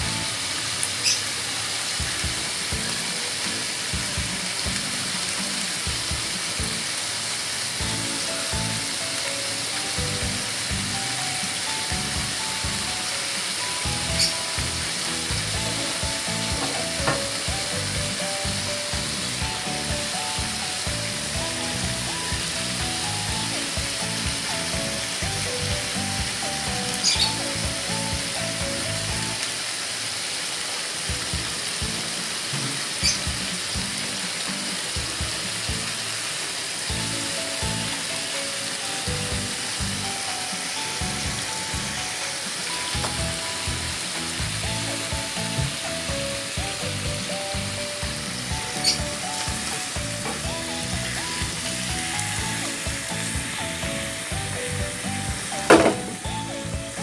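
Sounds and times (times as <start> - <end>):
pork frying in a pan: 0.0 - 57.0
background music: 7.7 - 29.5, 36.8 - 57.0.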